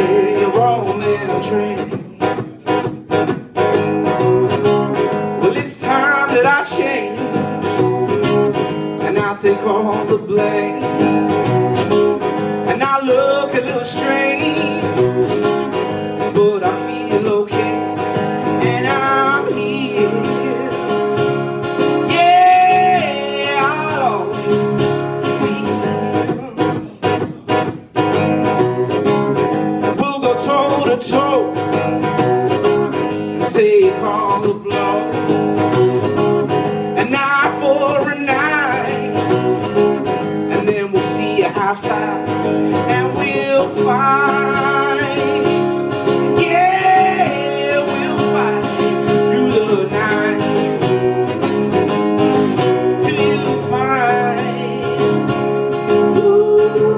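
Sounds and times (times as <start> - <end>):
man singing: 0.0 - 3.3, 4.1 - 27.6, 29.8 - 32.2, 32.9 - 56.9
acoustic guitar strumming: 0.0 - 56.9.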